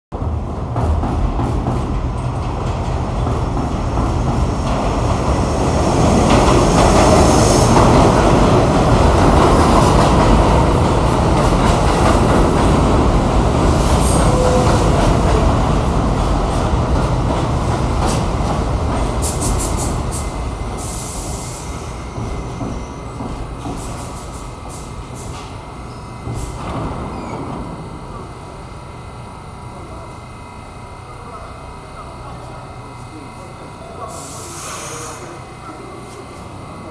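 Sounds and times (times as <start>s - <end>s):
subway train wheels rumbling: 0.1s - 36.9s
short high hiss: 34.1s - 35.4s.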